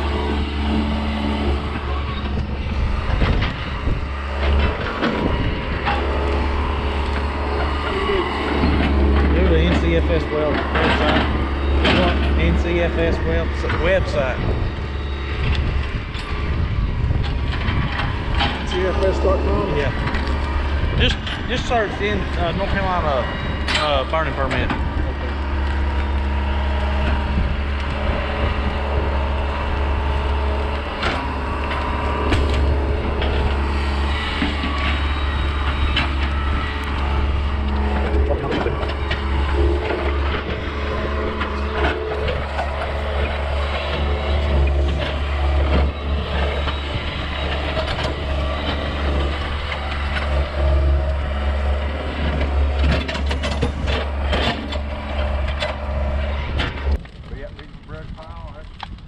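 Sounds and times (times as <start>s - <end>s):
diesel engine running: 0.0s - 59.0s
sharp cracks and snaps: 56.6s - 59.0s.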